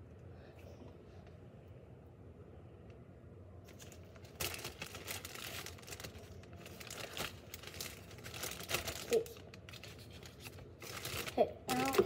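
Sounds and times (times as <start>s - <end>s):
plastic bag crinkling: 3.7s - 12.0s.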